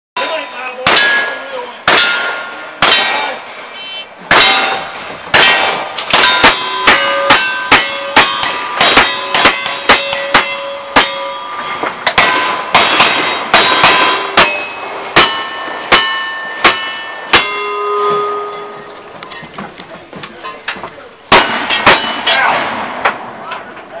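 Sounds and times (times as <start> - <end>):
steel target ringing: 0.2 - 3.4, 4.3 - 19.2, 21.3 - 22.6
gunshots: 0.2 - 14.6, 21.3 - 23.5.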